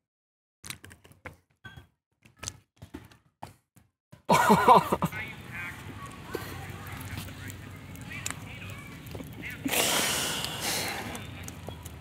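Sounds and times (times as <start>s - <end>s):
loud outburst of voices: 4.3s - 11.6s
faint clicks and taps: 5.8s - 9.6s, 11.1s - 12.0s.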